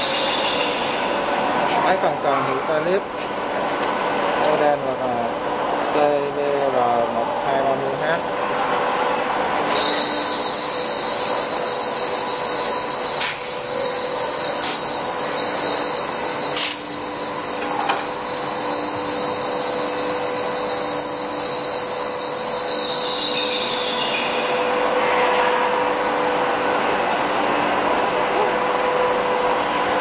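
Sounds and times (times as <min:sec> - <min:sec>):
radial arm drill whining: 0:09.7 - 0:23.9.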